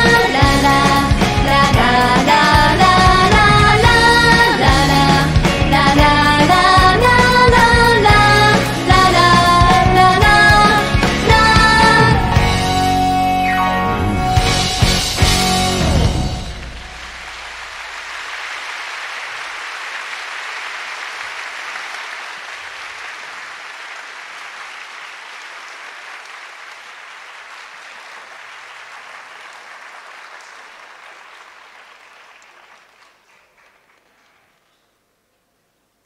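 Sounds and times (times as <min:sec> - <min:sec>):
audience applauding: 0:16.4 - 0:34.7.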